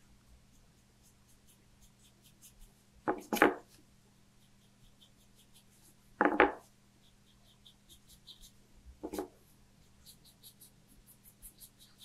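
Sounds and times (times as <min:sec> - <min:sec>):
paintbrush stroking on paper: 0:00.3 - 0:02.9, 0:04.4 - 0:12.0.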